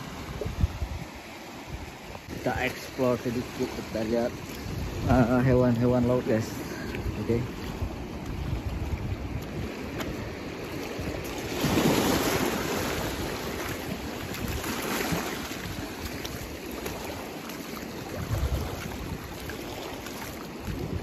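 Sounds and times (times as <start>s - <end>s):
small waves washing over rocks: 0.0s - 21.0s
wind rumbling on microphone: 0.0s - 21.0s.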